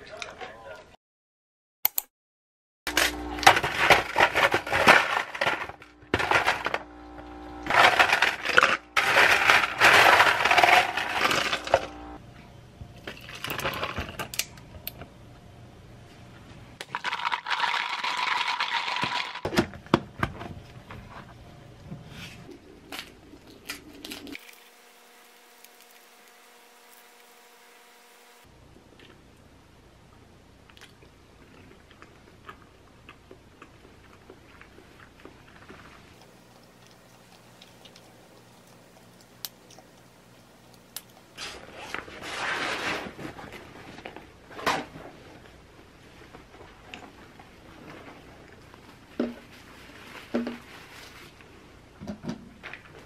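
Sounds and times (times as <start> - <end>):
coffee pouring over ice: 7.7 - 11.8, 16.8 - 19.4
ice cubes clinking into cup: 7.7 - 11.8, 16.8 - 19.5.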